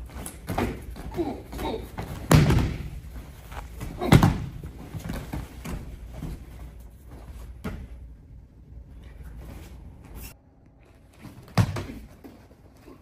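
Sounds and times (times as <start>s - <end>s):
bodies bumping and scuffing on mat: 0.0s - 8.0s.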